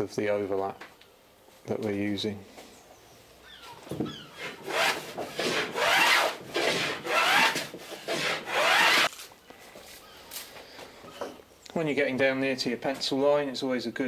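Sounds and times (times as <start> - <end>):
hand plane scraping wood: 4.4 - 9.1.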